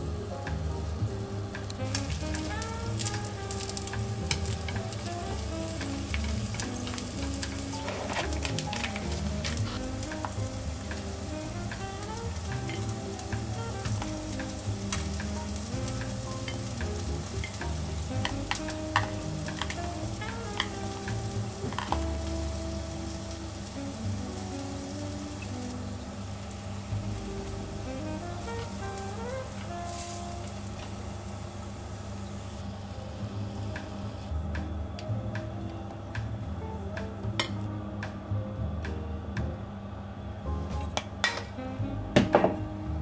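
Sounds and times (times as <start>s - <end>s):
soft background music: 0.0s - 31.7s, 32.4s - 43.0s
food sizzling in a frying pan: 0.2s - 34.4s.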